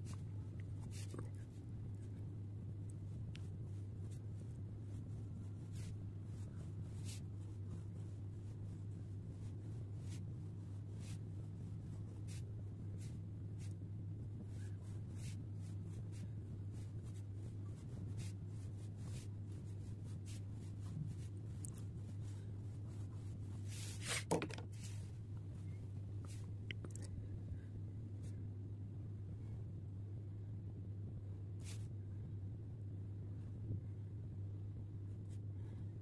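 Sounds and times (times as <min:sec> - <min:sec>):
low hum: 0:00.0 - 0:36.0
pen scratching on paper: 0:04.0 - 0:11.2, 0:14.5 - 0:25.1.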